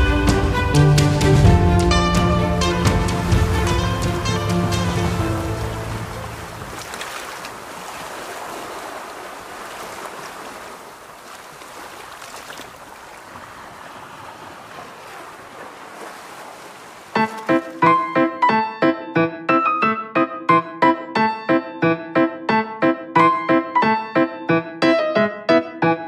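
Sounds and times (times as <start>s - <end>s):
piano music: 0.0s - 6.8s, 17.2s - 26.0s
waves washing: 0.0s - 18.3s.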